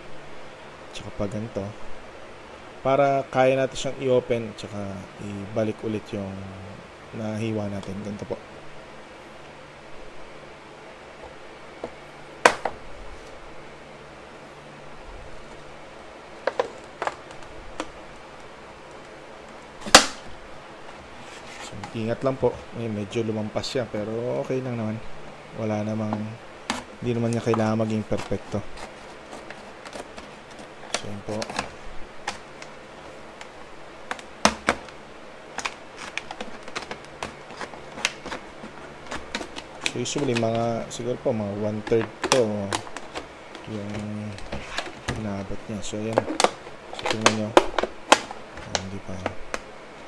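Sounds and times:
sharp plastic snap: 19.8s - 20.3s
plastic bottle crackling while cut: 34.1s - 40.6s, 46.1s - 49.6s.

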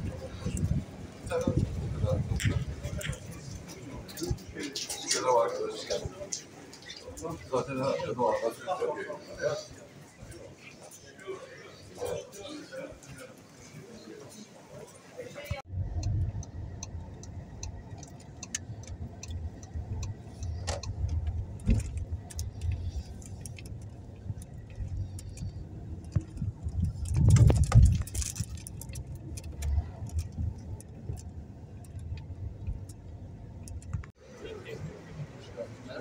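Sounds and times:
car road and engine rumble: 0.0s - 4.7s, 15.6s - 36.0s
light clicks and rattles: 15.7s - 34.2s.

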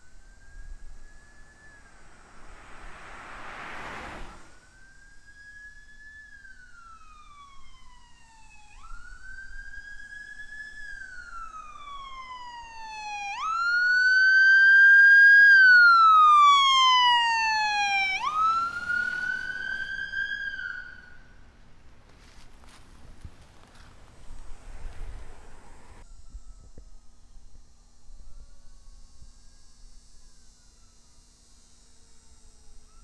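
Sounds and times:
siren wailing: 0.0s - 21.4s.

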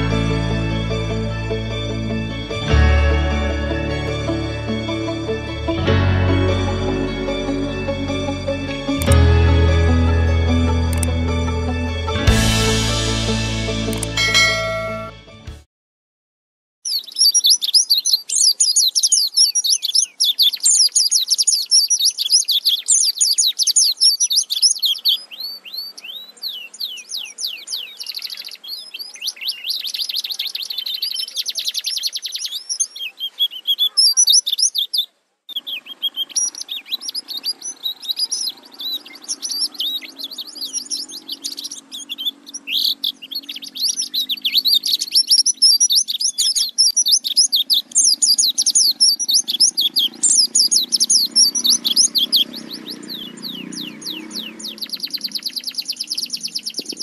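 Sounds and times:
bird singing rapid chirps and trills: 16.8s - 57.0s.

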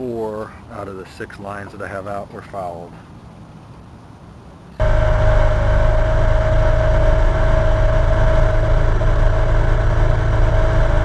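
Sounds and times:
outboard motor running: 4.8s - 11.0s.

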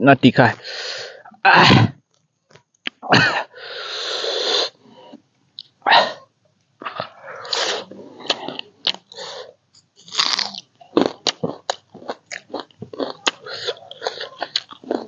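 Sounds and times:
person sneezing: 1.5s - 2.0s, 5.9s - 6.2s
long hissing breath: 3.5s - 5.0s.

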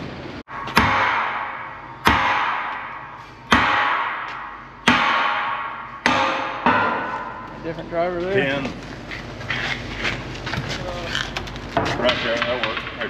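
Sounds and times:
hammer striking steel: 0.5s - 7.6s.

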